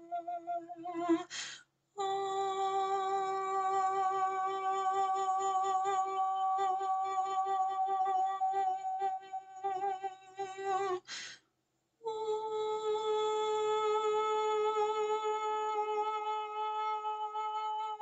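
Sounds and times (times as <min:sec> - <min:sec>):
woman singing long held notes: 0:00.0 - 0:11.3, 0:12.1 - 0:18.0
quick breath: 0:01.3 - 0:01.7, 0:11.1 - 0:11.5.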